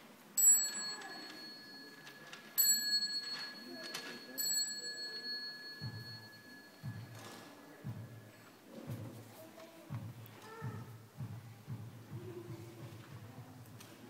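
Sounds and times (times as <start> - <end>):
temple bell ringing: 0.4 - 8.6.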